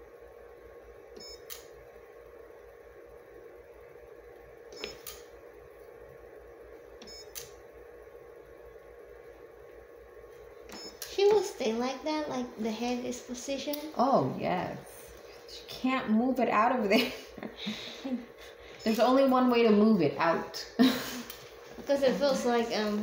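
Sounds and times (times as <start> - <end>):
steady hum: 0.0 - 23.0
scanner controls clicking and beeping: 1.1 - 1.8, 4.7 - 5.3, 7.0 - 7.6, 10.6 - 11.5.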